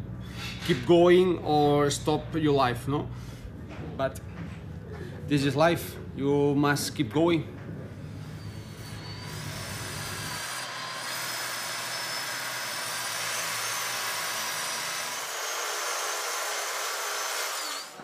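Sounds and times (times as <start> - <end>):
electric saw cutting foam: 8.1 - 18.0.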